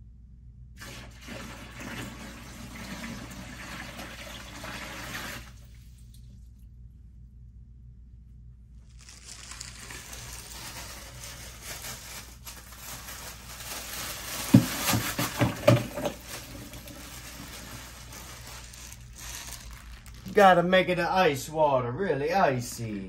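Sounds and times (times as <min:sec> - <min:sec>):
plastic bag crinkling: 0:08.8 - 0:20.7.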